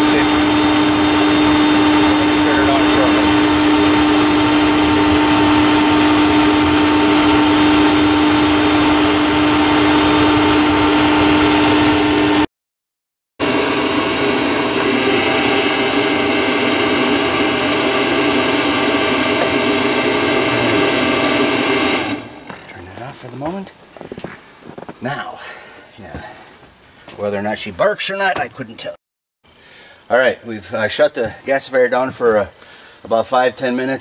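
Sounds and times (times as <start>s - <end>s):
motor-driven blower humming: 0.0s - 12.5s, 13.4s - 24.9s.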